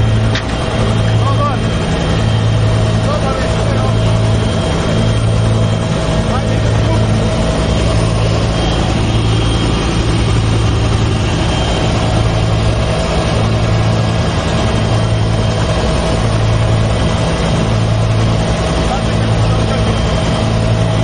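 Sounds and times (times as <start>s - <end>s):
helicopter rotor and engine drone: 0.0s - 21.0s
rush of noise: 0.0s - 21.0s.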